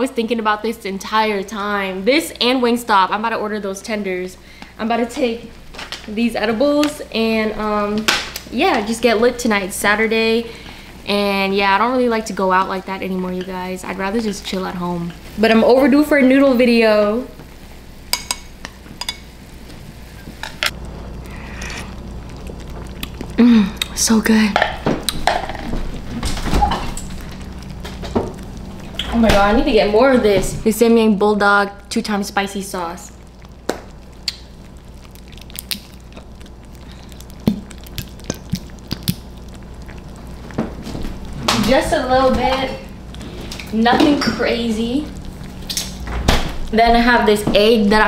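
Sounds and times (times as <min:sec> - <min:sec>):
chopsticks tapping pan: 0:18.1 - 0:19.2
soft sip of broth: 0:21.2 - 0:23.9.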